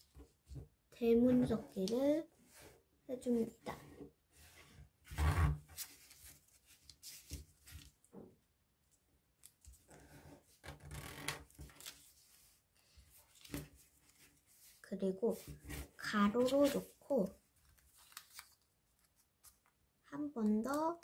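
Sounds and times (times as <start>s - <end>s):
paper crackling and rustling: 5.7s - 8.0s, 11.2s - 19.8s.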